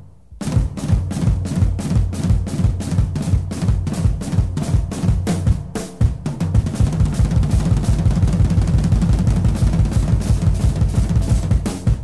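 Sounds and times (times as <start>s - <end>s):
fast drum roll: 0.4s - 12.0s.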